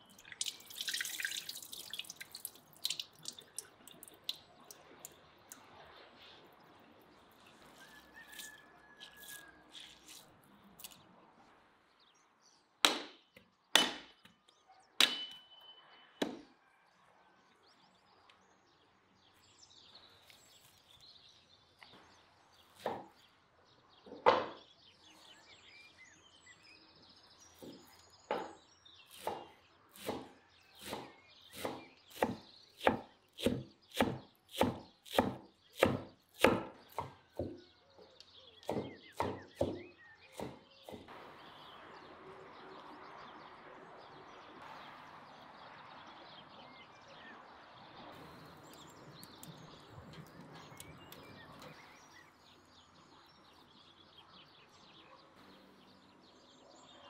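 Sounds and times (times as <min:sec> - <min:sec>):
hatchet striking firewood: 0:12.8 - 0:14.3, 0:15.0 - 0:15.4, 0:16.2 - 0:16.5, 0:29.2 - 0:37.6, 0:38.6 - 0:41.1
knife chopping on wooden board: 0:27.6 - 0:37.6, 0:38.6 - 0:41.1.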